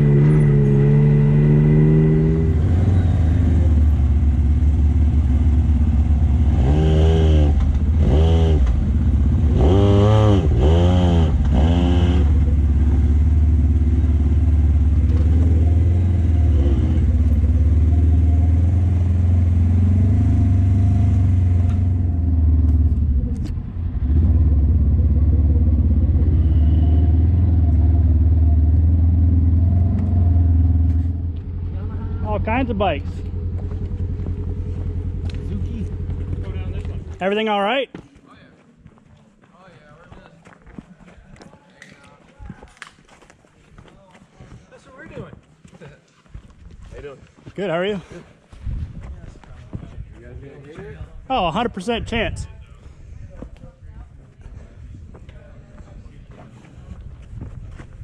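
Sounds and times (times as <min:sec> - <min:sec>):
utility vehicle engine revving: 0:00.0 - 0:37.2.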